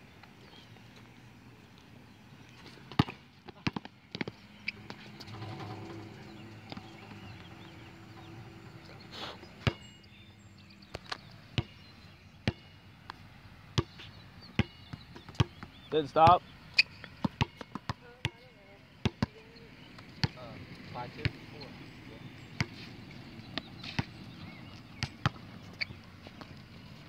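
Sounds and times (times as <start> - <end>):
basketball bouncing on hard court: 2.9 - 9.9, 11.5 - 13.2, 13.8 - 15.7, 17.1 - 18.4, 19.0 - 19.4, 25.0 - 26.0.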